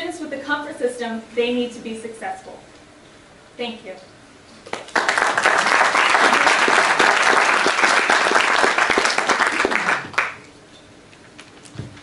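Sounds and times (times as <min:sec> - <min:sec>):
audience applauding: 0:04.7 - 0:10.5.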